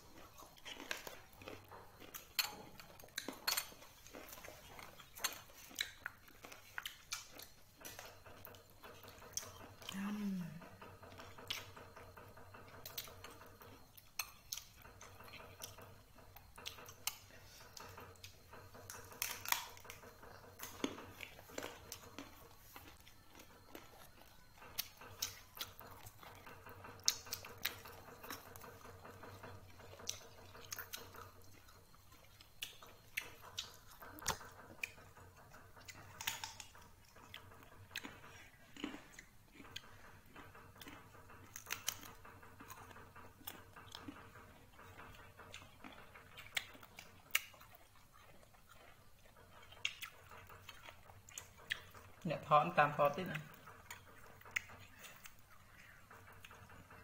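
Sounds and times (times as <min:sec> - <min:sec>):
faint steady hum: 0:00.0 - 0:57.0
person chewing food: 0:00.0 - 0:57.0
plate clicks and clatters: 0:49.0 - 0:57.0.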